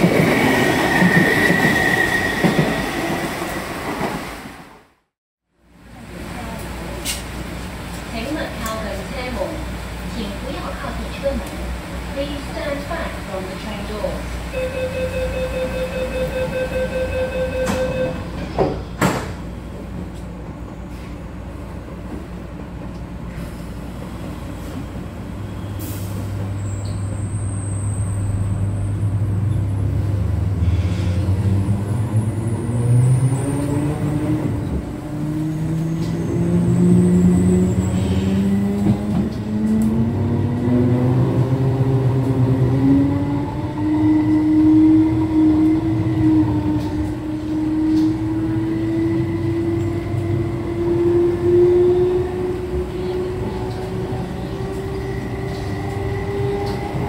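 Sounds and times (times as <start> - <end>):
door-closing beeps: 14.6 - 18.5
train doors knocking shut: 17.6 - 19.4.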